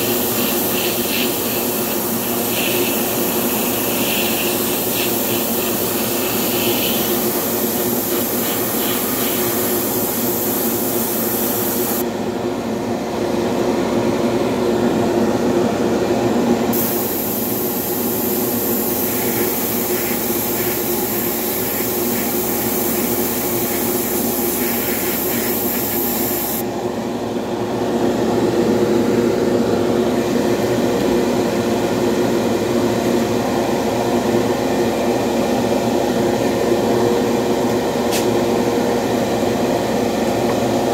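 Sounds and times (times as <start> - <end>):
airbrush spraying hiss: 0.0 - 12.0, 16.7 - 26.6
steady motor hum: 0.0 - 40.9.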